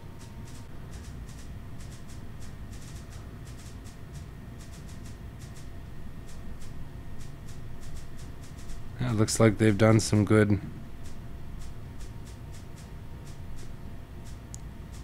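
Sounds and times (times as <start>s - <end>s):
low room hum: 0.0s - 15.0s
mouse scroll wheel ticking: 0.5s - 5.7s, 6.3s - 8.8s, 11.0s - 15.0s.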